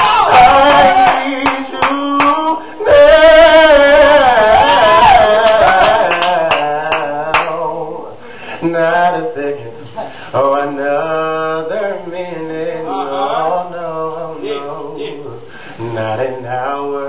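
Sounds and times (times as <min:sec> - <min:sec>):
man singing through microphone: 0:00.0 - 0:17.0.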